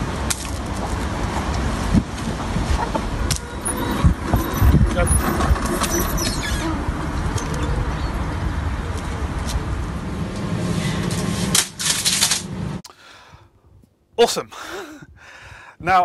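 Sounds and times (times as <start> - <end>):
lawnmower engine putter: 3.3 - 6.7, 11.1 - 12.5.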